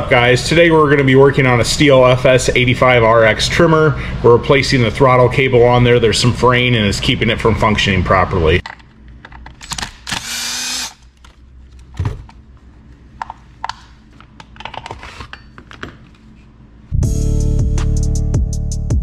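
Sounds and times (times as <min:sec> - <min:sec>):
tools clicking and knocking: 0:08.6 - 0:10.4, 0:13.2 - 0:16.2
small power tool running: 0:10.1 - 0:11.0
music with a beat: 0:17.0 - 0:19.0.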